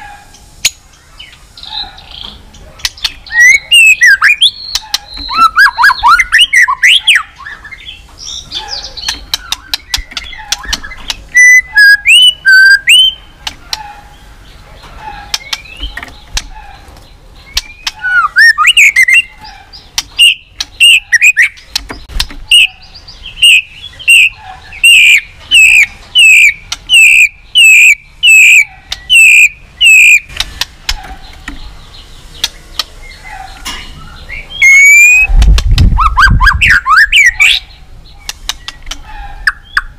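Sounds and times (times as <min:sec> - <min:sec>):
bird singing whistled song: 0:03.0 - 0:13.3, 0:17.4 - 0:19.4, 0:20.0 - 0:21.6, 0:22.5 - 0:30.3, 0:34.0 - 0:39.9.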